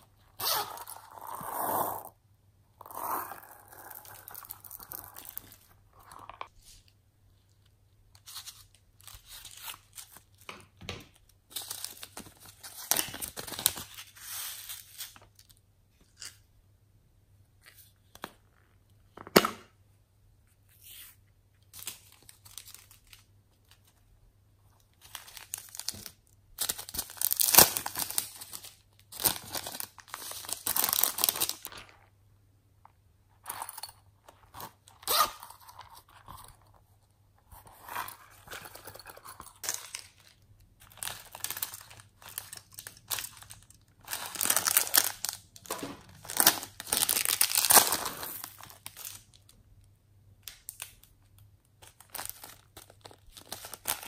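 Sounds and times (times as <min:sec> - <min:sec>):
plastic packaging crinkling and tearing: 0:11.5 - 0:15.6, 0:25.0 - 0:32.0, 0:39.6 - 0:49.6, 0:50.4 - 0:54.0.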